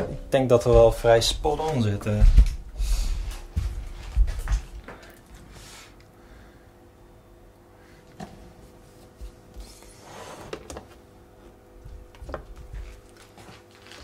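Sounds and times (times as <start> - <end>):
faint steady hum: 0.0 - 14.0.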